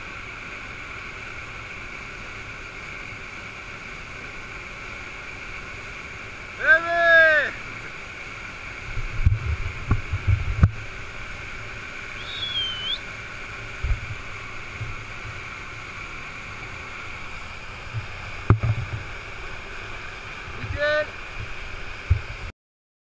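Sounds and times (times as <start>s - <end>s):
waterfall rushing: 0.0s - 22.5s
wind thumps on microphone: 8.9s - 10.9s, 13.8s - 15.0s, 17.9s - 19.1s, 21.4s - 22.5s
short high whistle-like call: 12.1s - 13.0s.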